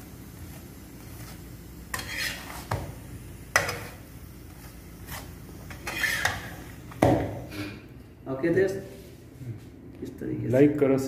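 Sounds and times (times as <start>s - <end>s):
metal spatula scraping pan: 1.9s - 2.7s, 5.7s - 6.6s.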